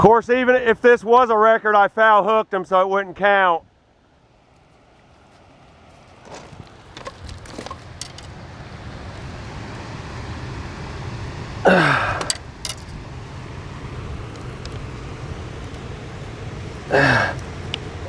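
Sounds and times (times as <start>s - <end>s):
low steady rumble: 3.6s - 18.0s
net frame clicks and rattles: 6.3s - 8.4s, 12.2s - 13.0s.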